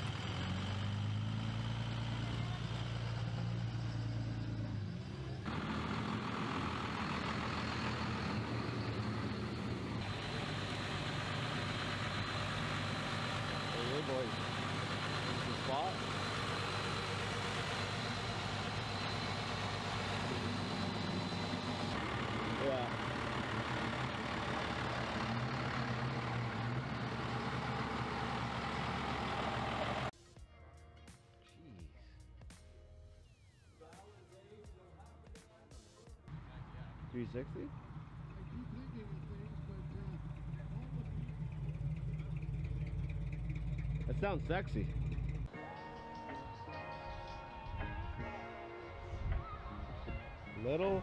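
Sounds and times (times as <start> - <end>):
truck engine running: 0.0 - 30.1, 36.3 - 45.5.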